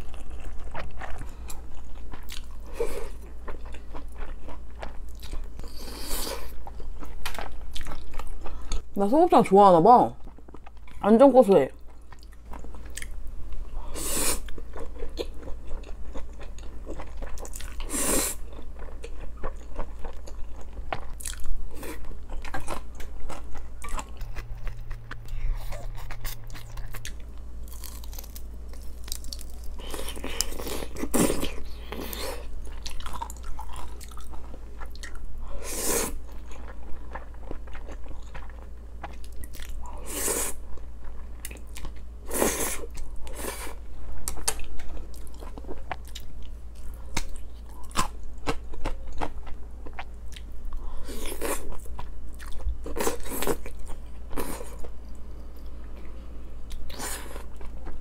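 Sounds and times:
close chewing and biting: 0.0 - 5.8, 14.4 - 35.2
steady low hum: 0.0 - 58.0.

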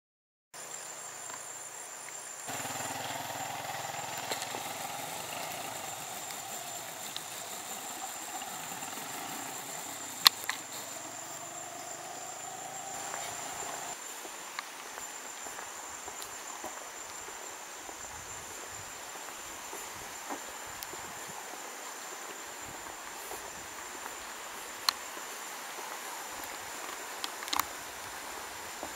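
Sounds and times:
high-pitched insect drone: 2.3 - 14.0.

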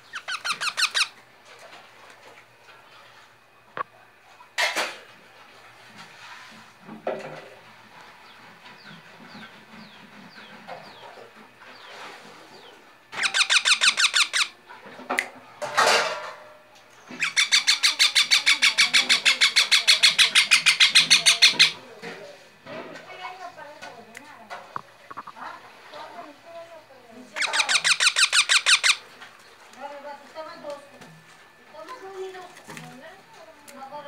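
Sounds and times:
baby parakeets squawking: 0.0 - 1.2, 13.1 - 14.6, 17.1 - 21.8, 27.3 - 29.0.

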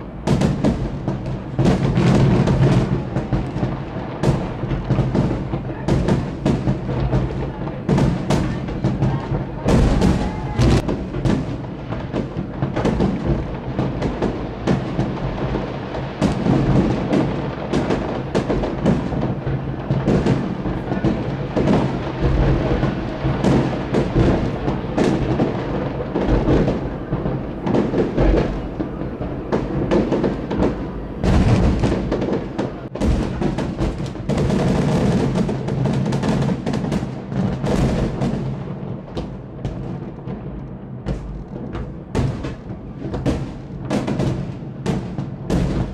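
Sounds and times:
fireworks booms and bangs: 0.0 - 45.9
firework whistling: 7.9 - 13.0.

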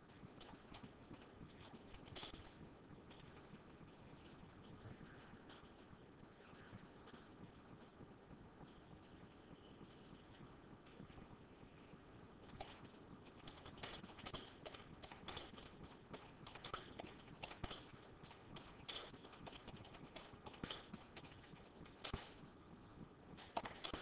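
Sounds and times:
irregular clicking and tapping: 0.0 - 6.3, 11.9 - 24.0.

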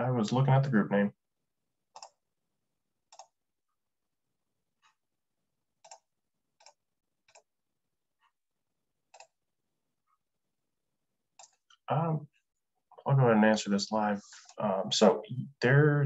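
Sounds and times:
computer mouse clicks: 1.9 - 2.2, 3.1 - 3.4, 5.8 - 7.5, 9.1 - 9.4, 11.4 - 11.8.

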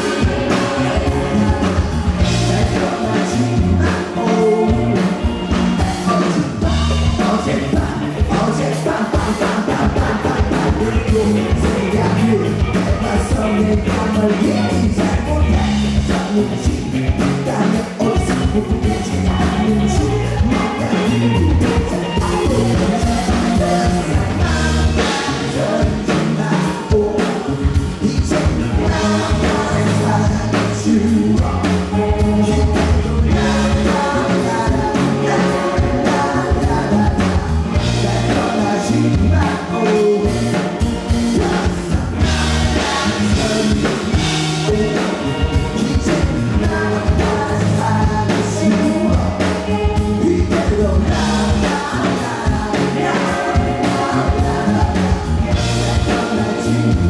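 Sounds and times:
man singing: 0.0 - 57.0
rock band playing: 0.0 - 57.0.

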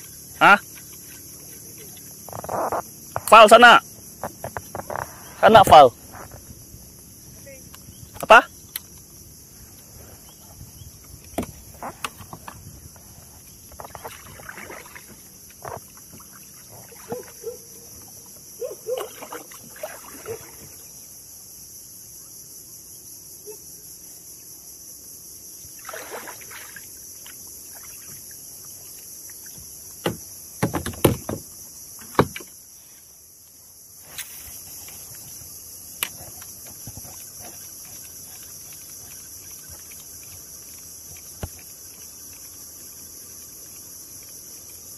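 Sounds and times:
paddle splashes: 0.0 - 2.8, 13.4 - 21.1, 25.6 - 31.4
high-pitched insect chorus: 0.0 - 44.9
paddle knocking against kayak hull: 29.4 - 32.5.

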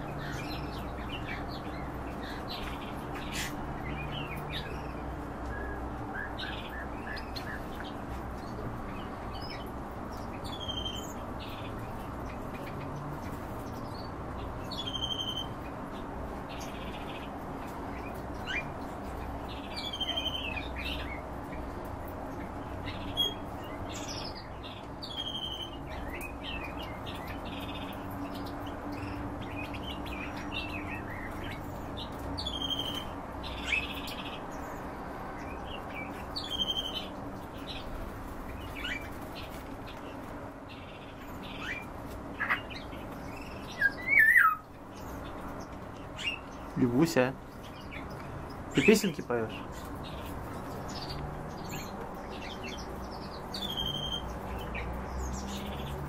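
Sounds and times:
finches chirping: 0.0 - 17.3, 17.9 - 21.3, 22.6 - 56.0.

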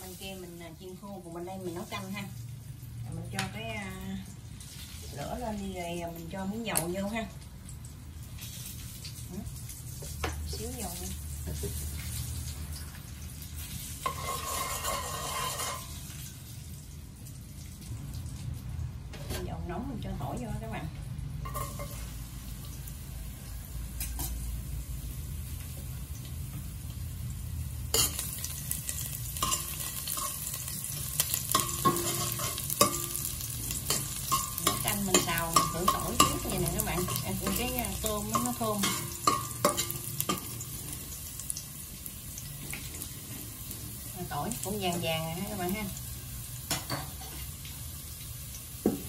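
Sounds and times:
garlic sizzling in hot oil: 0.0 - 49.0
metal ladle scraping a steel pot: 14.0 - 15.9.

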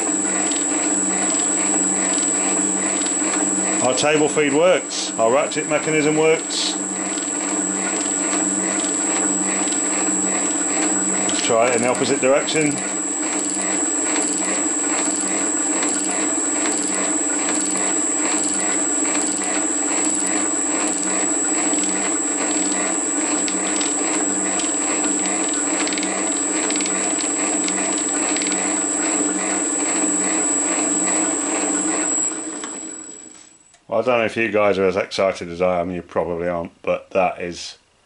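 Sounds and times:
motor and gear hum: 0.0 - 33.6
high inverter whine: 0.0 - 34.8
regular mechanical clicking: 7.0 - 11.5, 21.6 - 28.7.

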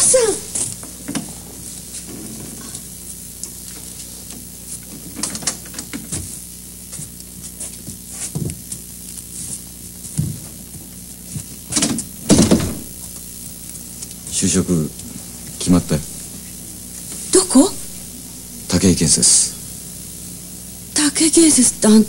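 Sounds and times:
soundtrack hum and hiss: 0.0 - 22.0
loud bump: 12.2 - 13.0.

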